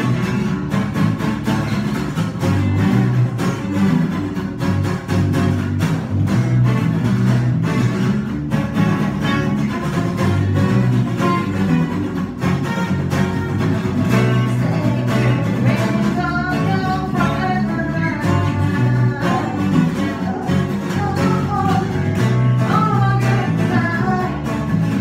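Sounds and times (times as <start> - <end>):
electric bass line: 0.0 - 25.0
strummed acoustic guitar: 0.0 - 25.0
person singing: 14.1 - 25.0.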